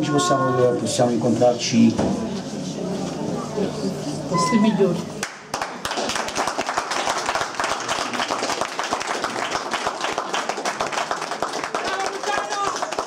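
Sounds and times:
group of people clapping: 5.2s - 13.0s.

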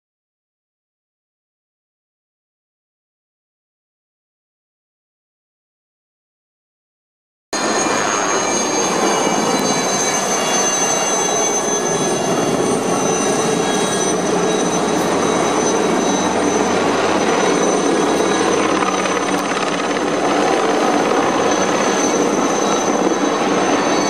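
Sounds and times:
helicopter turbine whine: 7.6s - 24.0s.

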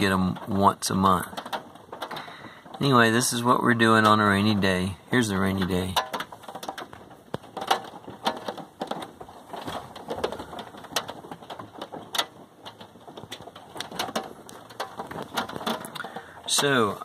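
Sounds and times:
light rain hiss: 0.0s - 17.0s
rain drops ticking on a van: 0.0s - 17.0s.

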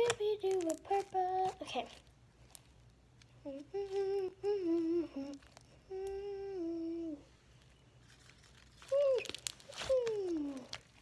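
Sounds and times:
girl humming: 3.4s - 7.3s, 8.9s - 10.8s.

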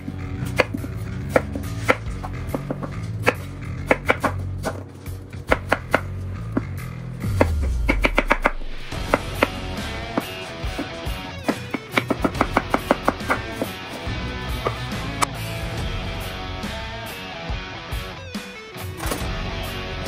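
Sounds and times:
background music: 0.0s - 20.0s.

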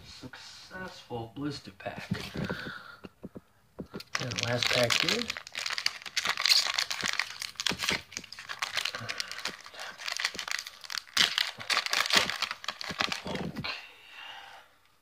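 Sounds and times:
foil wrapper tearing and crinkling: 4.0s - 13.6s.

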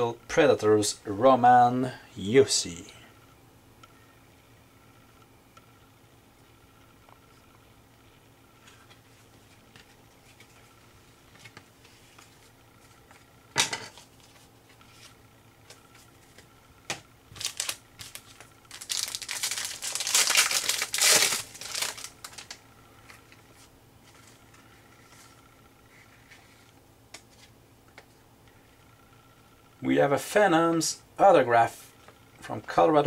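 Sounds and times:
foil wrapper tearing and crinkling: 17.3s - 22.6s.

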